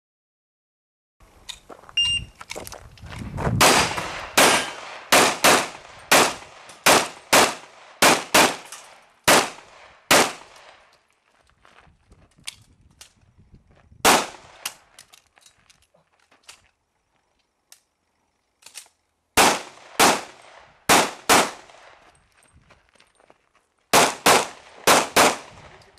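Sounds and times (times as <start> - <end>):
pistol shots: 3.6 - 10.8, 14.0 - 14.8, 19.4 - 21.9, 23.9 - 25.7.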